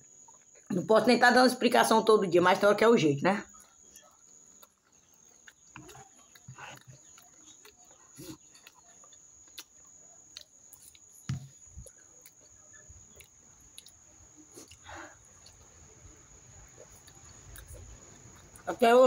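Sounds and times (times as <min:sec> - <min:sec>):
chewing meat off a bone: 0:03.5 - 0:18.7.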